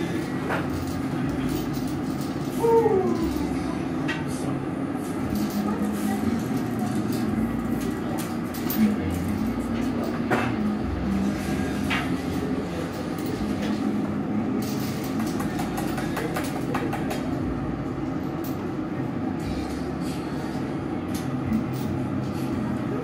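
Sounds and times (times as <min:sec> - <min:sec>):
gas furnace and burners roaring: 0:00.0 - 0:23.0.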